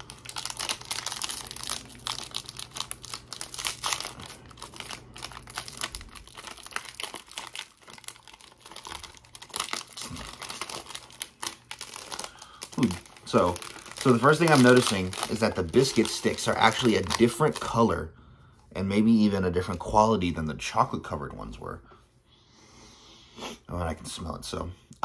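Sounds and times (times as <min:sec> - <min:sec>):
snack wrapper crinkling and tearing: 0:00.0 - 0:17.9.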